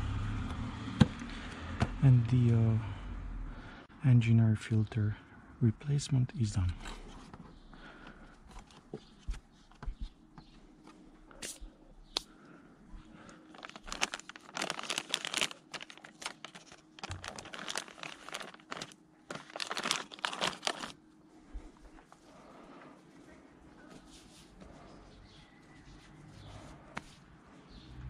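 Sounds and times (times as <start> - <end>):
plastic packaging crinkling: 13.5 - 21.0.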